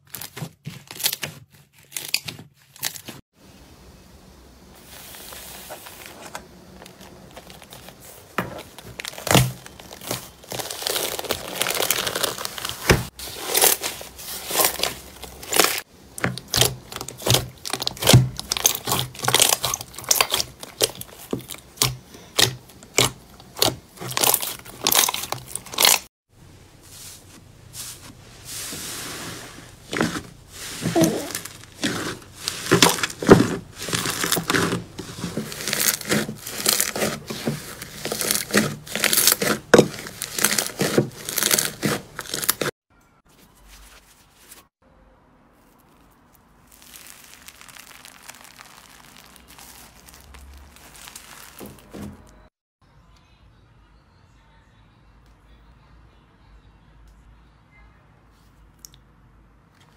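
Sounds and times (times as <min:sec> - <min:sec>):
paper crinkling and peeling: 0:04.8 - 0:26.1, 0:29.7 - 0:42.8, 0:43.4 - 0:44.7, 0:45.6 - 0:52.5
slime squishing and popping: 0:08.6 - 0:13.9, 0:14.5 - 0:26.0, 0:30.8 - 0:42.7, 0:45.6 - 0:52.5.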